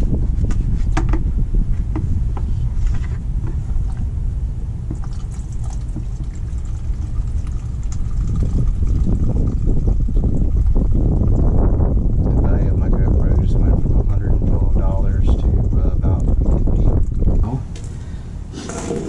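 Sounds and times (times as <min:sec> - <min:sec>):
wind rumbling on microphone: 0:00.0 - 0:19.0.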